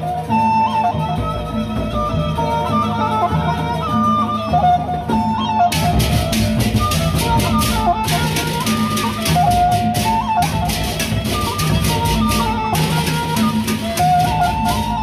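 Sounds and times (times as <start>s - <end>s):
flute melody: 0.0s - 15.0s
large drums: 4.6s - 15.0s.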